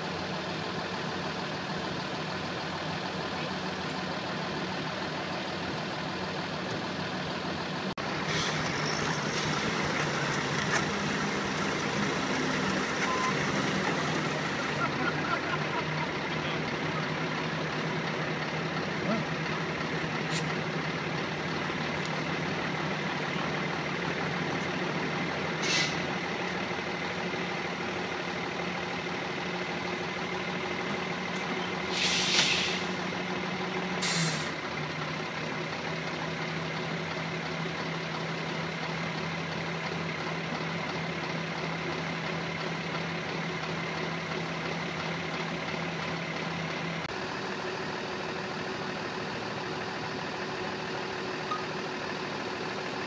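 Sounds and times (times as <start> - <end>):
truck diesel engines idling: 0.0 - 53.0
air hissing: 25.6 - 26.0, 31.9 - 33.0.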